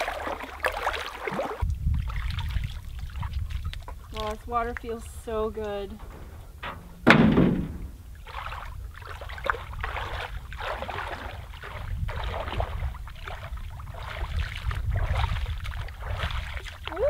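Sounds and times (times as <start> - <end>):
feet wading through water: 0.0 - 6.4, 8.0 - 17.0
low steady rumble: 0.0 - 17.0
water splashed by hand: 0.0 - 17.0.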